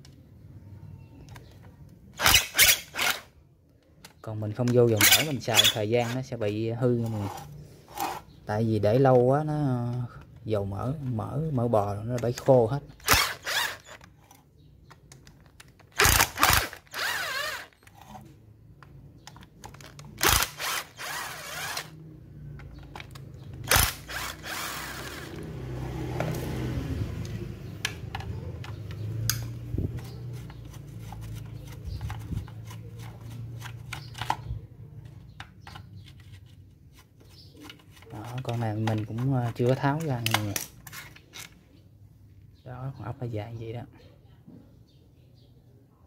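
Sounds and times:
screwdriver ratchet clicks: 15.9 - 18.0, 20.2 - 21.9, 23.1 - 25.3.

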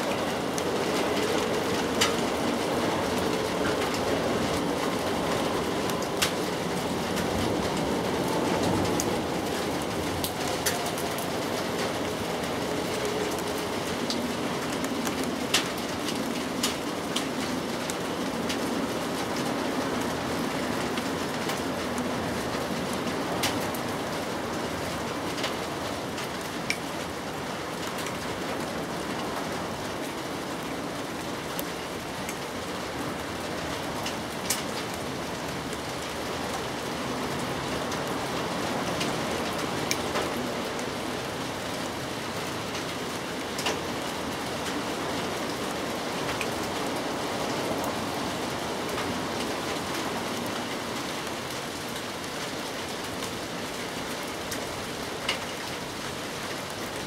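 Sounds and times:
steady rain: 0.0 - 57.0.

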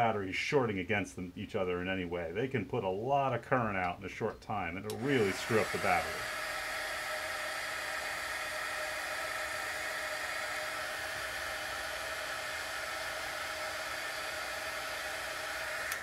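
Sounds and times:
heat gun fan blowing: 4.9 - 16.0.

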